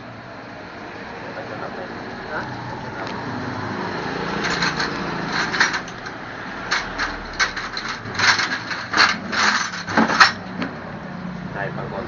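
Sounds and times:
metal tools clinking: 4.3s - 10.5s.

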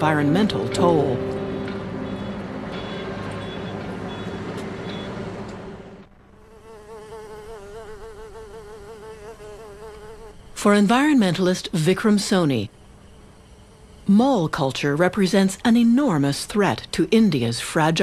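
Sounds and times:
road traffic hum: 0.0s - 6.6s
bee buzzing: 6.4s - 10.6s.

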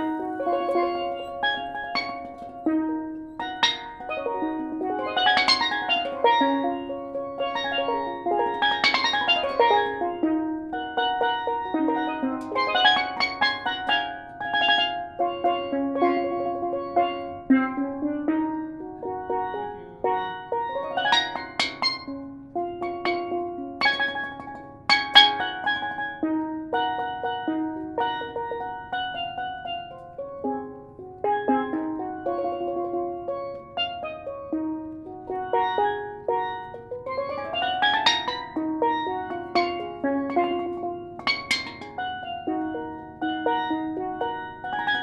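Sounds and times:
steel pan melody: 0.0s - 45.0s.

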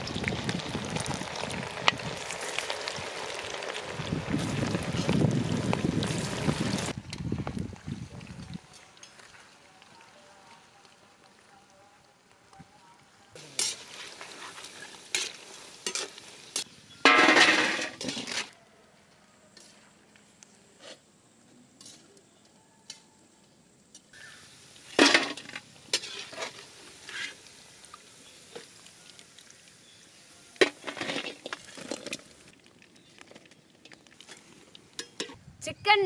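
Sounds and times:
chicken sizzling in oil: 0.0s - 11.5s, 13.3s - 18.5s, 24.1s - 35.3s
utensil scraping a pan: 25.0s - 27.4s.

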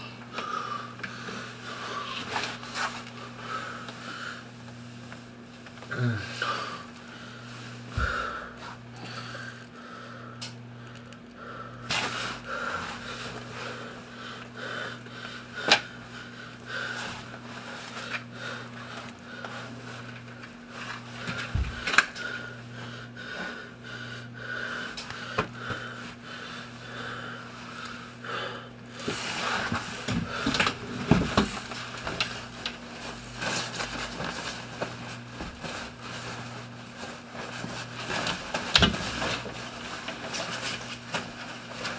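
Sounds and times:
low steady hum: 0.0s - 41.9s
man wheezing breathing: 5.8s - 17.2s.

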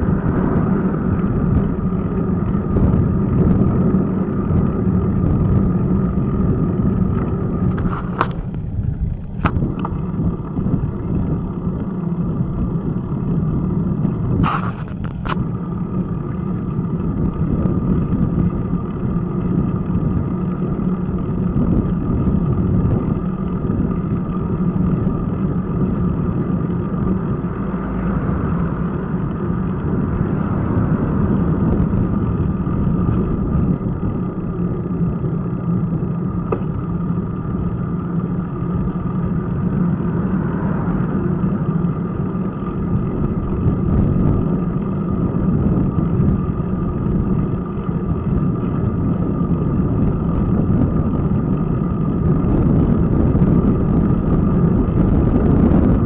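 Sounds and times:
vehicle passing: 0.0s - 4.9s, 25.3s - 46.6s
car passing: 0.0s - 8.5s, 24.6s - 49.5s
bicycle road rumble: 0.0s - 56.0s
wind on microphone: 0.0s - 56.0s.

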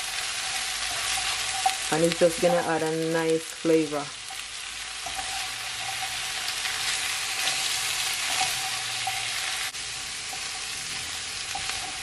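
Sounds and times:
vegetables sizzling in frying pan: 0.0s - 12.0s
spatula stirring: 0.3s - 2.6s, 4.2s - 10.6s.

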